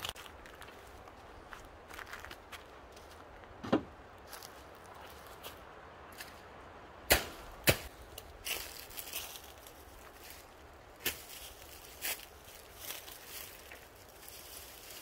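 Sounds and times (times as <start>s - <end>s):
rustling: 7.7s - 15.0s.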